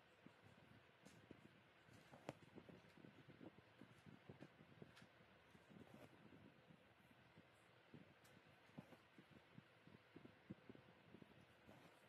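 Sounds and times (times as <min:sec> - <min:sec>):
soft taps and cloth rustle: 0:01.0 - 0:03.1, 0:08.2 - 0:09.3, 0:11.6 - 0:12.0.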